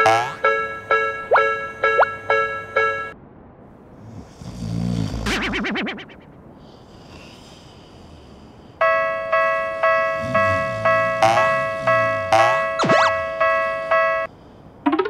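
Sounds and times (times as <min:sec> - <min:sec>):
comic wobbling sound effect: 0:00.0 - 0:00.5, 0:05.3 - 0:06.4, 0:10.2 - 0:13.5
railroad crossing bell ringing: 0:00.0 - 0:03.2, 0:08.8 - 0:14.3.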